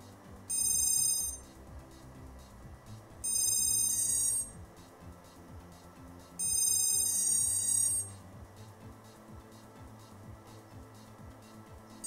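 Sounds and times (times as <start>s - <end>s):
high-pitched electronic tones: 0.5s - 1.4s, 3.2s - 4.5s, 6.4s - 8.1s.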